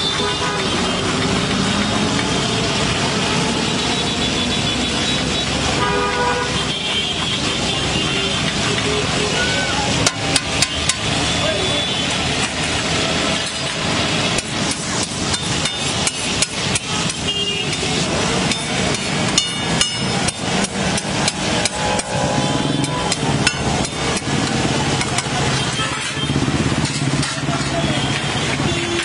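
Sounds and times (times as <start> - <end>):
low street rumble: 0.0 - 29.0
metal spatula scraping on griddle: 12.4 - 29.0.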